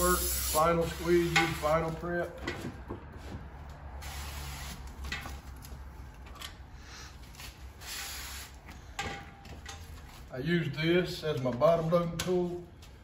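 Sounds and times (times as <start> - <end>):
liquid spray hissing: 0.0 - 1.6, 7.8 - 8.6.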